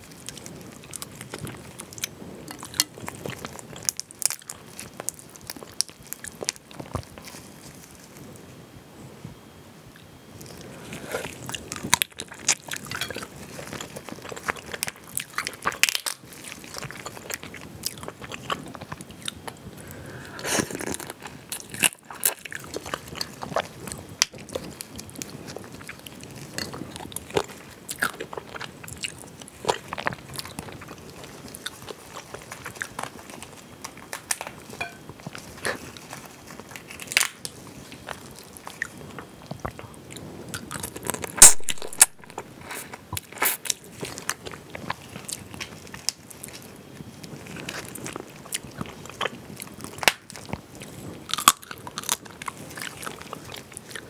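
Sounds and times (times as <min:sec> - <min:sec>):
chewing: 0:00.0 - 0:08.3, 0:10.0 - 0:54.0
shells cracking and snapping: 0:33.8 - 0:35.4, 0:36.8 - 0:38.2, 0:40.6 - 0:42.4.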